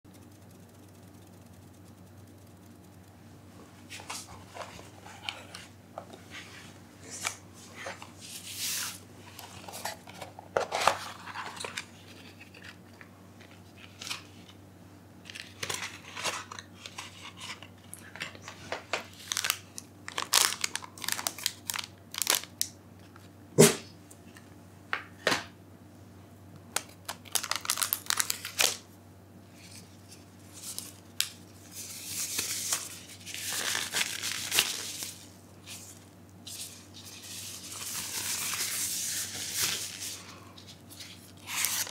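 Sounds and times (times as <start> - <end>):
plastic gloves crinkling: 15.3 - 22.7, 26.8 - 28.8, 29.5 - 41.9
foil pouch crinkling: 19.1 - 22.7, 26.8 - 28.8, 29.6 - 41.9.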